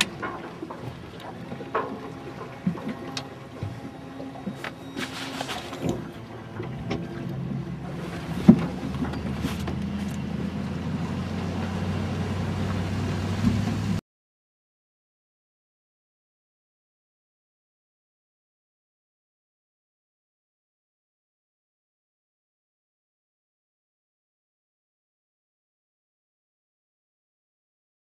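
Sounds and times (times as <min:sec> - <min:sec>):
boat hull knocking and rattling: 0:00.0 - 0:11.8, 0:12.6 - 0:14.0
tow vehicle low hum: 0:00.0 - 0:14.0.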